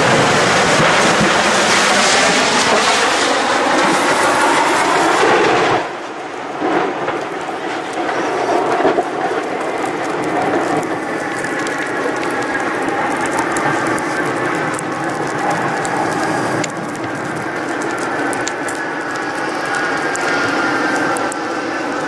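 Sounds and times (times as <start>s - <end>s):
quieter rushing: 0.0s - 8.9s
crackles and clicks: 0.0s - 22.0s
loud rushing roar: 0.0s - 22.0s.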